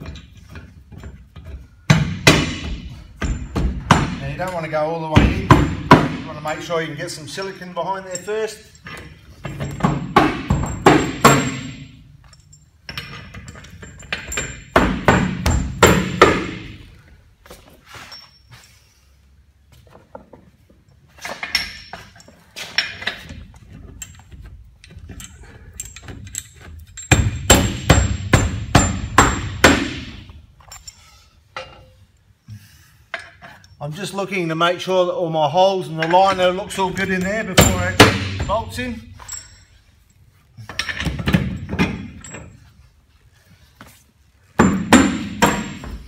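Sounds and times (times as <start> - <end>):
hammer striking metal bolts: 0.0 - 6.4, 8.1 - 12.0, 12.9 - 16.8, 27.0 - 30.3, 36.0 - 38.9, 44.6 - 46.0.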